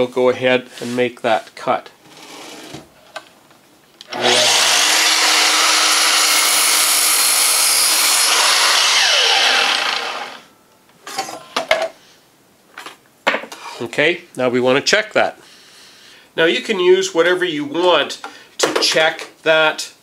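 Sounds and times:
mitre saw cutting wood: 4.1s - 10.5s
saw motor spinning down: 4.1s - 10.5s.

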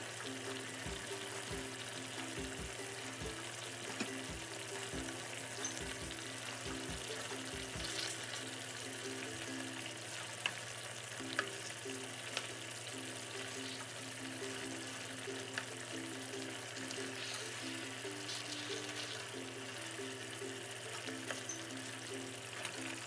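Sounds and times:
curry sizzling in a frying pan: 0.0s - 23.0s
soft background music: 0.0s - 23.0s.

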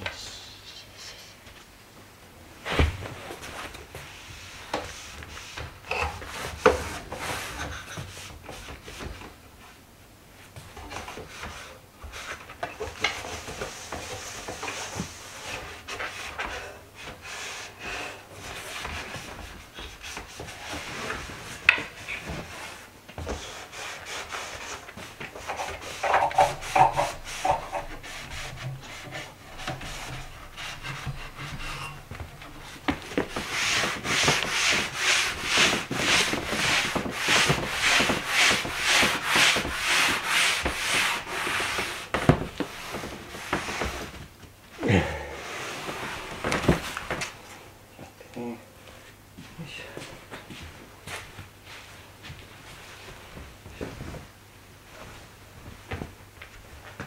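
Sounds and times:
cloth rubbing on wooden frame: 10.5s - 44.3s, 45.4s - 47.2s.

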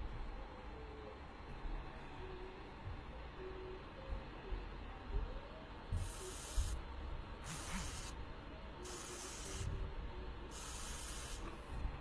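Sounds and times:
soldering iron tip hissing: 6.0s - 6.8s, 7.4s - 8.2s, 8.9s - 9.7s, 10.5s - 11.5s.

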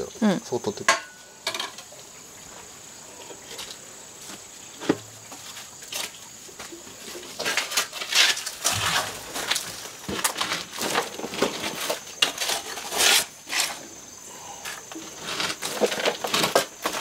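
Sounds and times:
ash and wood scraping and clattering: 7.0s - 14.0s, 14.6s - 17.0s.

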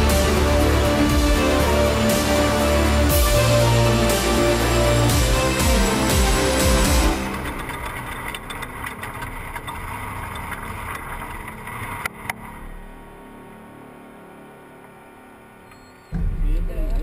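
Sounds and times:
truck engine running: 0.0s - 13.1s.

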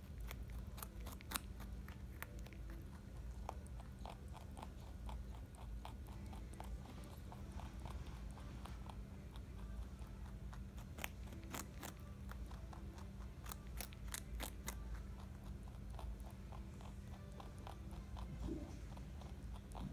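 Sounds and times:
low steady hum: 0.0s - 19.9s
rabbit chewing carrot: 0.0s - 19.9s.

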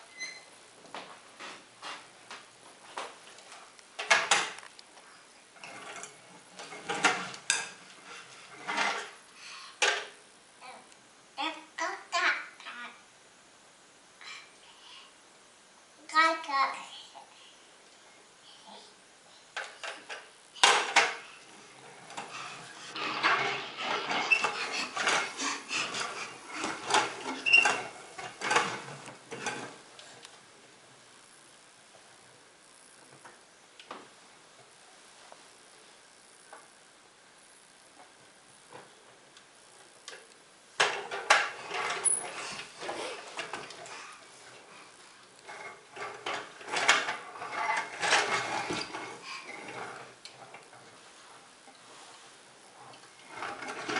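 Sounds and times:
toy tractor rattling on wooden floor: 22.0s - 29.8s, 40.8s - 43.7s, 45.5s - 50.5s.

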